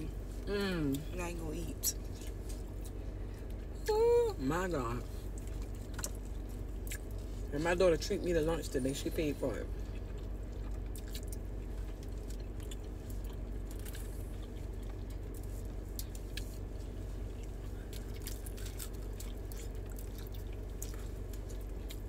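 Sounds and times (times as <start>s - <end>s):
low car interior hum: 0.0s - 22.0s
people chewing food: 2.0s - 4.0s, 5.2s - 7.5s, 8.9s - 22.0s.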